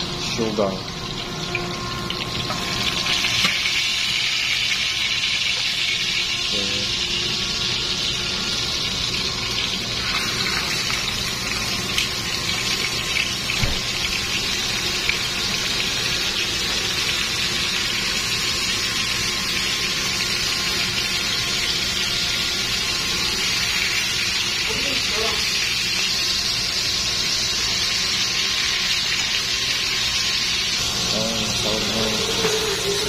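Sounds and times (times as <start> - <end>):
oil sizzling in a frying pan: 0.0 - 33.0.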